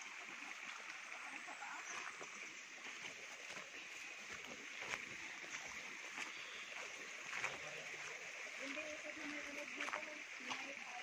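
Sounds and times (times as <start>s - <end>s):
footsteps crunching dry leaves: 2.8s - 11.0s.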